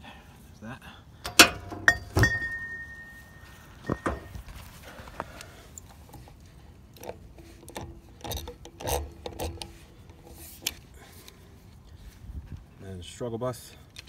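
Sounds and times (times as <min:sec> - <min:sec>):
metallic socket clicks and scrapes: 0:05.7 - 0:11.4.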